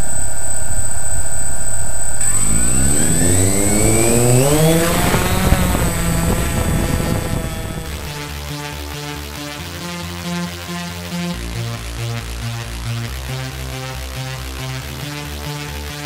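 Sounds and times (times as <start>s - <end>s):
drone propellers whirring: 0.0s - 8.4s.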